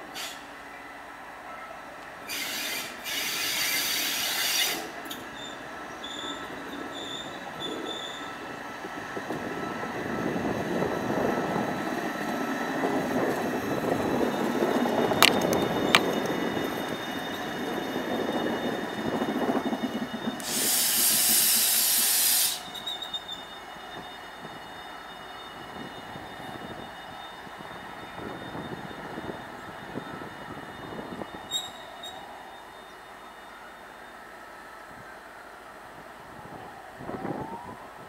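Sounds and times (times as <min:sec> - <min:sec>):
locomotive wheels rumbling on rails: 0:02.2 - 0:34.6
loud hiss of air: 0:20.4 - 0:22.8.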